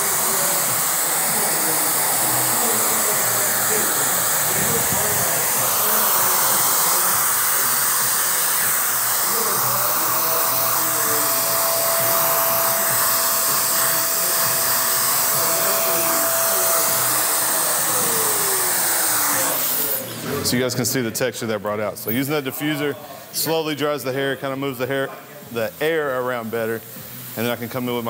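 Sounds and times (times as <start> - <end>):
blow dryer running: 0.0 - 20.5.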